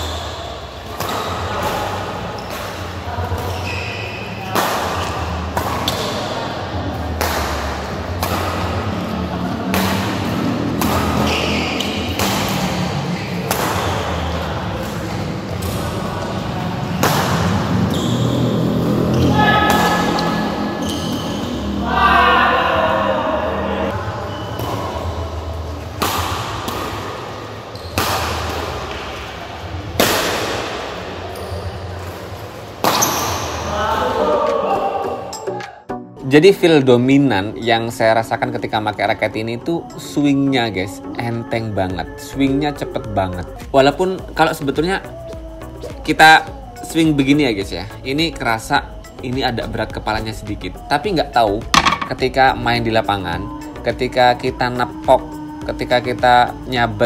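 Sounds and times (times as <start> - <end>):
racket hitting shuttlecock: 0.1 - 16.0, 16.9 - 17.7, 19.1 - 20.8, 25.9 - 29.3, 29.9 - 31.4, 32.8 - 33.7, 51.6 - 52.4.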